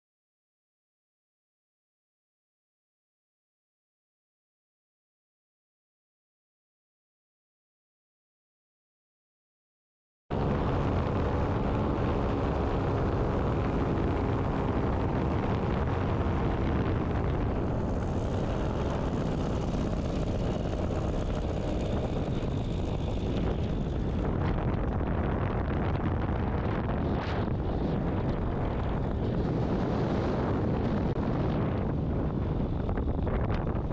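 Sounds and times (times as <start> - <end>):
paramotor engine and propeller: 10.3 - 33.9.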